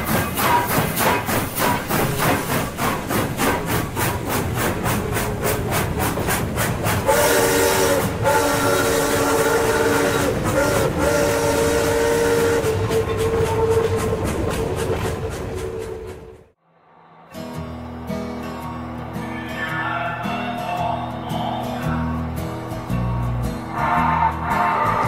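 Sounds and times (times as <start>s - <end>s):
steam locomotive chuffing: 0.0s - 16.6s
multi-chime steam whistle: 7.1s - 14.2s.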